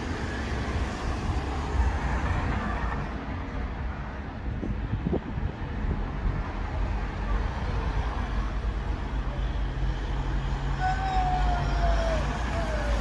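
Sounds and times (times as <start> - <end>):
wind buffeting microphone: 0.0 - 8.2
passing vehicle engine hum: 0.0 - 13.0
road traffic noise: 0.0 - 13.0.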